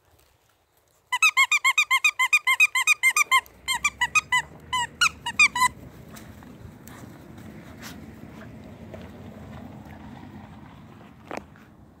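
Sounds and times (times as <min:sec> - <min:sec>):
squeaky dog toy squeaking: 0:01.1 - 0:05.8.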